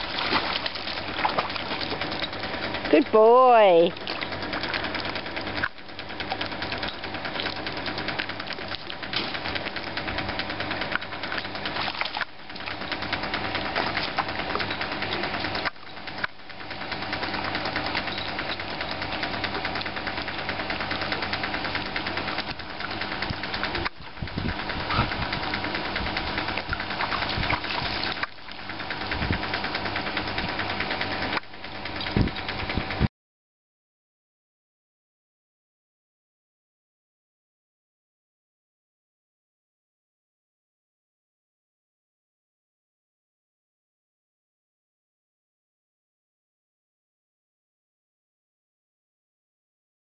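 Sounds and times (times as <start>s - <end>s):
dog splashing in water: 0.0s - 2.2s, 11.7s - 12.8s, 26.6s - 28.6s
steady hum: 0.0s - 33.1s.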